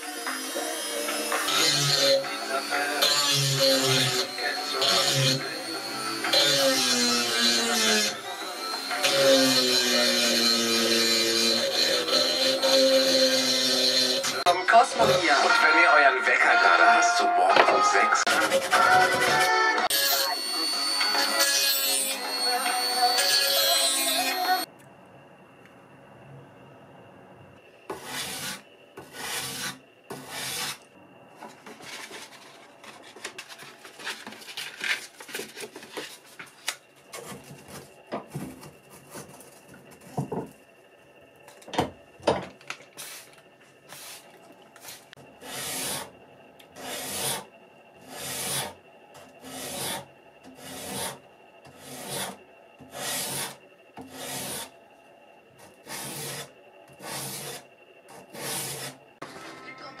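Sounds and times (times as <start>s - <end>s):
sandpaper scraping wood: 18.3s - 19.5s, 27.9s - 30.9s, 43.0s - 46.1s, 46.8s - 47.4s, 48.0s - 48.8s, 49.4s - 54.7s, 55.6s - 59.0s.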